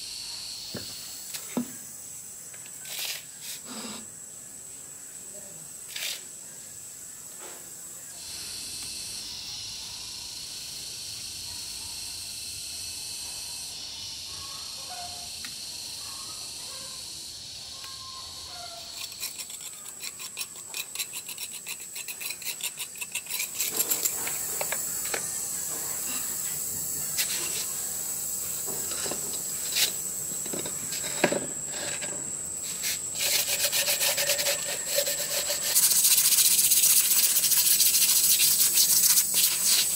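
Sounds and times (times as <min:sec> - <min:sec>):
steady high hiss: 0:00.0 - 0:09.6, 0:23.4 - 0:39.9
sandpaper rubbing on cement: 0:02.8 - 0:04.1, 0:05.9 - 0:06.3, 0:18.5 - 0:25.0, 0:25.7 - 0:28.0, 0:28.7 - 0:30.0, 0:30.7 - 0:39.9
trowel scraping cement: 0:18.8 - 0:24.8, 0:28.7 - 0:39.9.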